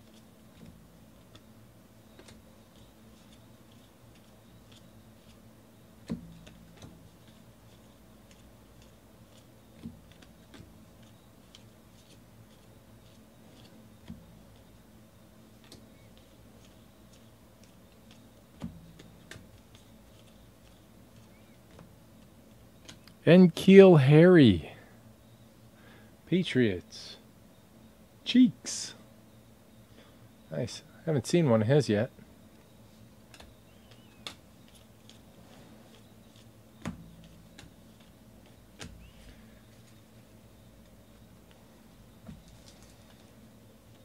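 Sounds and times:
cardboard cards being shuffled: 6.1 - 14.7, 15.6 - 23.2, 42.2 - 44.0
trading cards clicking and snapping: 15.6 - 21.9, 33.3 - 35.2.

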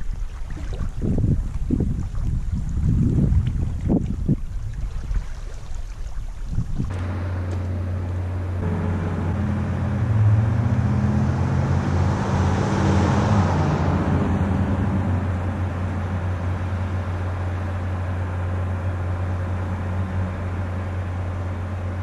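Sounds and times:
truck driving past: 6.9 - 22.0.

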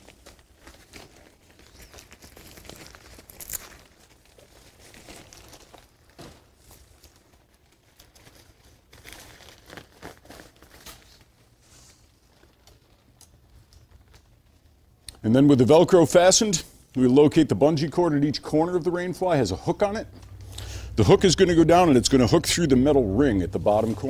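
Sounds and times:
velcro tabs rasping: 0.0 - 11.4
nylon tent fly rustling: 0.0 - 14.8, 21.6 - 24.0.

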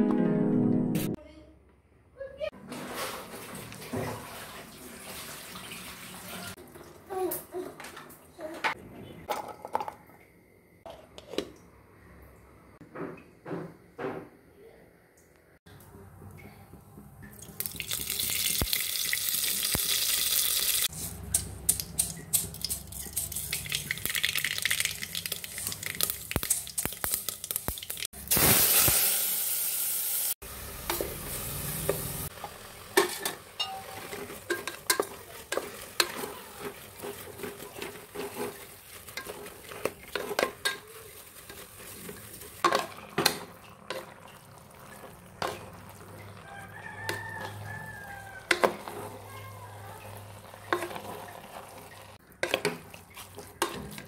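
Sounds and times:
food sizzling in a pot: 17.5 - 54.0
spoon clinking and scraping pot: 30.9 - 54.0.

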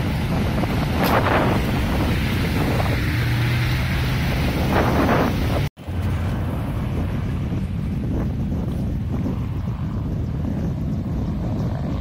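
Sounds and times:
creek water rushing: 0.0 - 6.0
wind buffeting microphone: 0.0 - 12.0.

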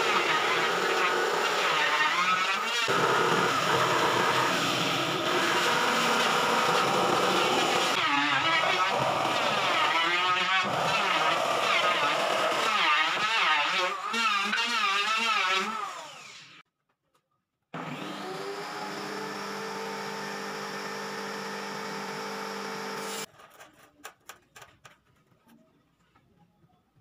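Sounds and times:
power tool whining: 0.0 - 16.6, 17.8 - 23.3
power tool motor spinning: 0.1 - 16.6, 17.8 - 23.3.

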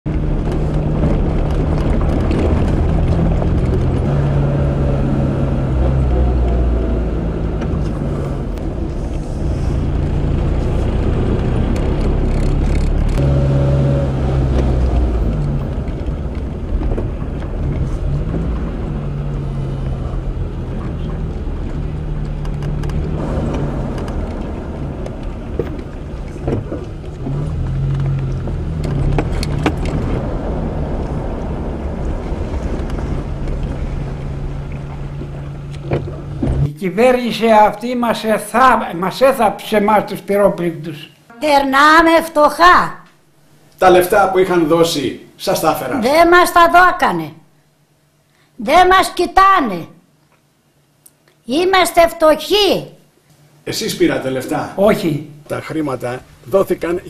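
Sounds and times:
car engine running: 0.1 - 36.8
road noise on gravel: 0.1 - 37.2.

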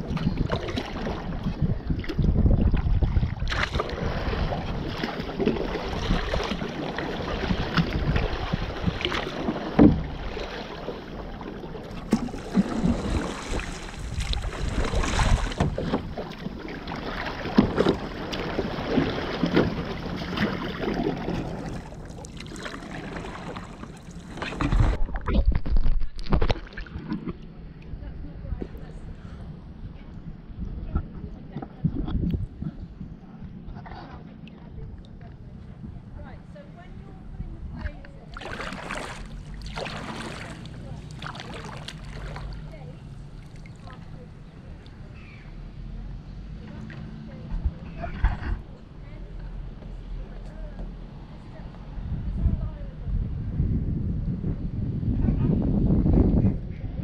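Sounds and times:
paddle water splashes: 0.0 - 27.5, 37.9 - 50.3
water sloshing against plastic hull: 0.0 - 29.6, 33.5 - 51.8
wind rumbling on microphone: 0.0 - 57.0.

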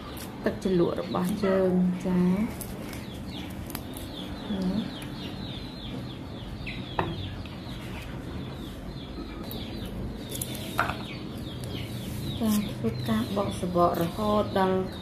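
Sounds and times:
chickens chirping: 1.0 - 15.0.

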